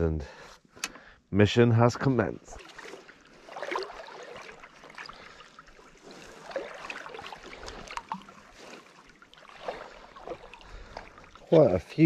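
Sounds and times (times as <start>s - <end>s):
seawater sloshing and splashing: 2.4s - 12.0s.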